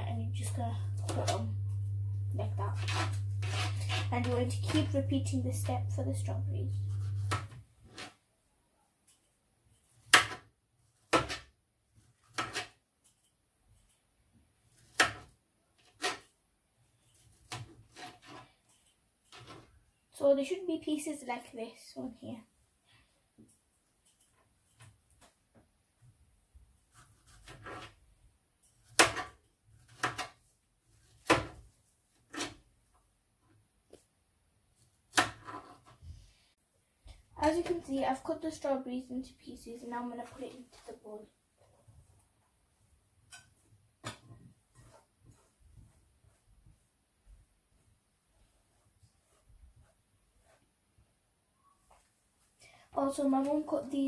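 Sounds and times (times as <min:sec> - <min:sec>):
knife cutting strawberries: 0:06.8 - 0:08.1.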